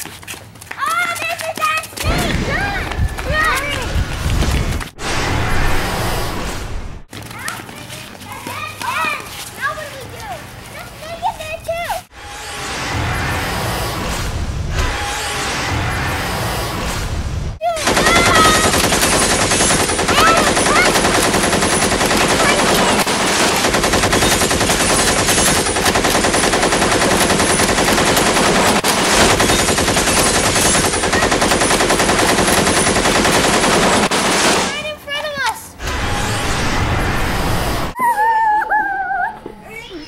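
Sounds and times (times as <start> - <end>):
machine-gun fire: 17.8 - 34.8.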